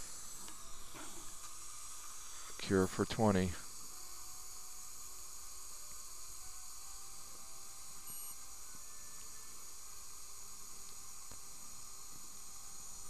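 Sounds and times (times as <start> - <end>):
dental equipment hissing: 0.0 - 13.0
short high beep: 8.1 - 8.4.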